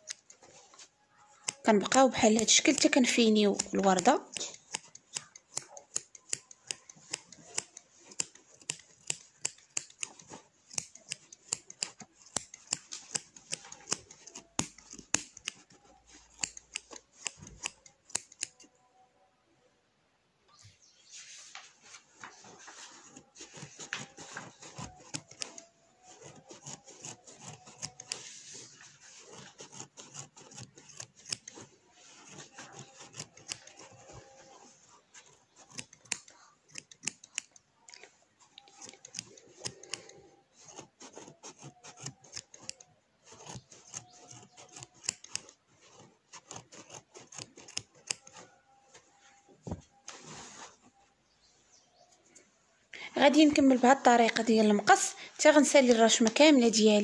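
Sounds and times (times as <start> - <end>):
scissors snipping thread: 0.0 - 18.8, 22.2 - 49.1
fabric rustling: 0.1 - 5.0, 20.6 - 36.6, 37.8 - 57.0.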